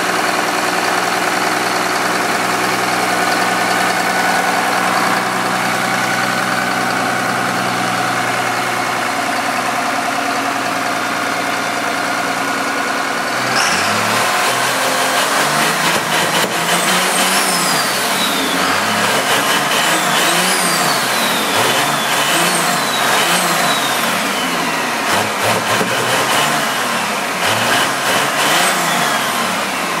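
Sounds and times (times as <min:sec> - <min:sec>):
diesel engine revving: 0:00.0 - 0:30.0
turbo whistle: 0:13.4 - 0:14.6, 0:16.8 - 0:24.9.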